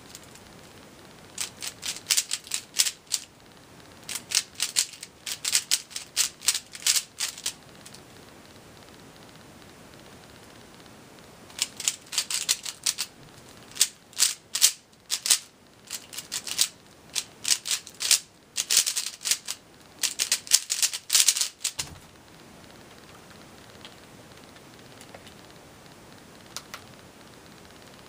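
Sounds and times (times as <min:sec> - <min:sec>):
plastic cube layers clicking: 0:01.4 - 0:03.3, 0:04.1 - 0:08.0, 0:11.5 - 0:13.1, 0:13.7 - 0:21.8.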